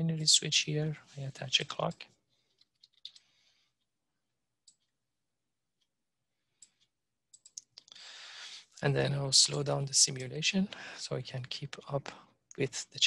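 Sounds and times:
computer mouse and keyboard clicks: 1.9 - 3.3, 6.6 - 7.8.

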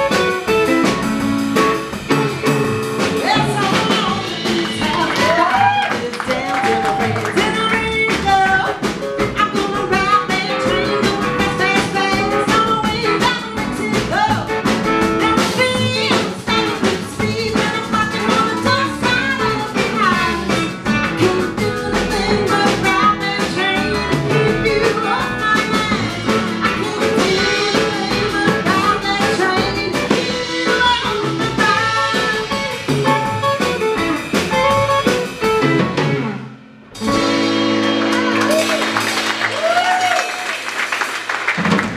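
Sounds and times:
live band playing blues: 0.0 - 41.9
woman singing: 3.0 - 33.6.

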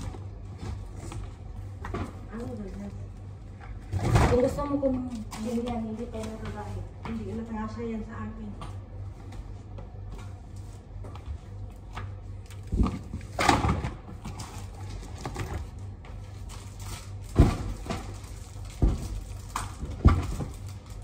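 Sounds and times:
steady low hum: 0.0 - 21.0
packages knocking and thudding: 12.6 - 21.0.

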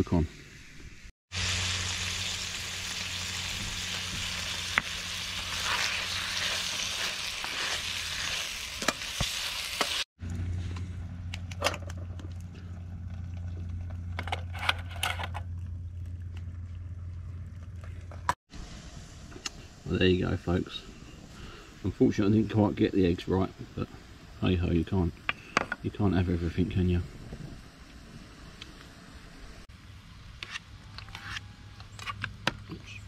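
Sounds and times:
bacon sizzling in frying pan: 1.3 - 10.1
eggs frying in butter: 1.3 - 10.1
steady low hum: 10.2 - 22.0.

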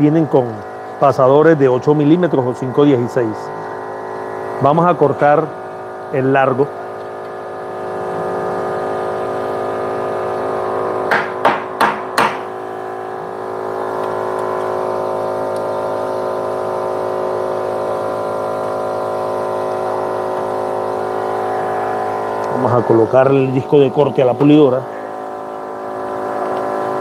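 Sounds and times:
electrical hum: 0.0 - 27.0.

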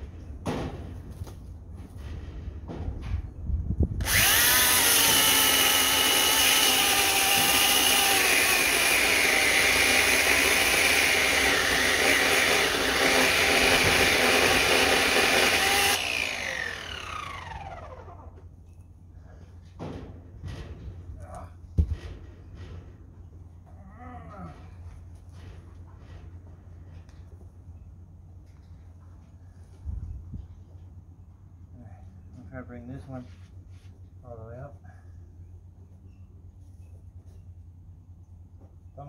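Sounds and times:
electric chainsaw cutting log: 4.0 - 18.4.

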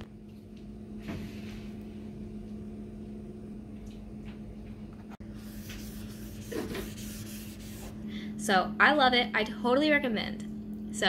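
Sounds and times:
steady low hum: 0.0 - 11.0
hand wiping a cooking plate: 5.4 - 8.0.

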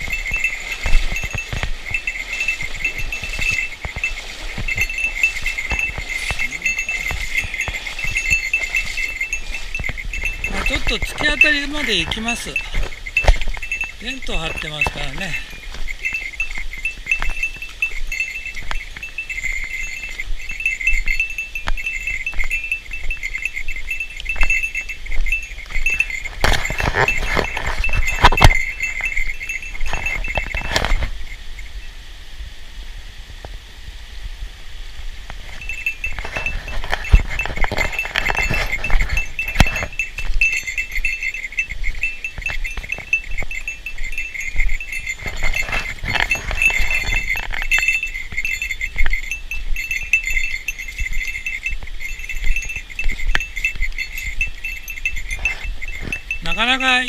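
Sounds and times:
footsteps on stones: 0.0 - 31.4, 35.2 - 57.0
small metal bell jingling: 0.0 - 31.9, 35.4 - 57.0.

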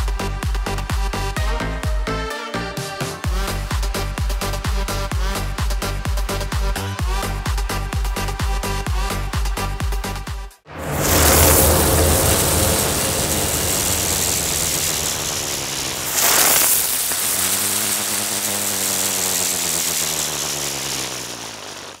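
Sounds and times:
low steady hum: 10.7 - 17.0
whoosh hit: 10.7 - 17.6
low rumbling drone: 10.7 - 18.8
rushing noise: 10.7 - 19.2.

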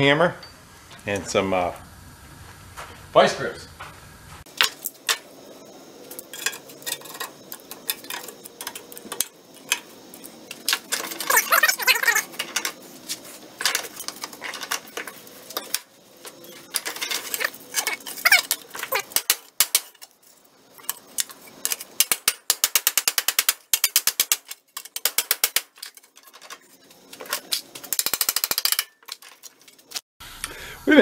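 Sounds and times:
metal scraping and clanking: 4.5 - 30.0
quick rattling clicks: 20.8 - 30.0.

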